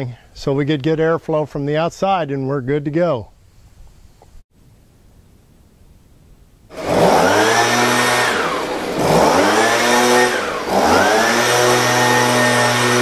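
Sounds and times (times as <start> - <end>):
air blower motor whirring: 6.7 - 13.0.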